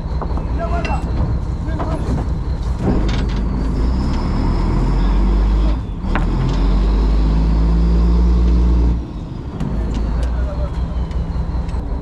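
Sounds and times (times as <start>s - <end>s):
boat engine humming: 8.0s - 12.0s.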